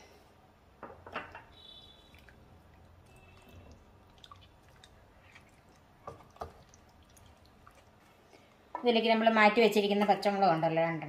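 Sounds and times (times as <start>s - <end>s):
spatula stirring curry: 1.6s - 8.5s.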